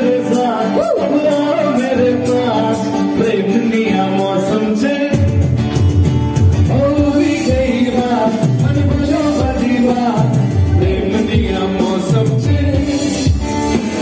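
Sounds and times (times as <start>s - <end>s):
man singing into a microphone: 0.0s - 5.6s, 6.6s - 14.0s
backing music: 0.0s - 14.0s
heavy bass line: 5.1s - 14.0s.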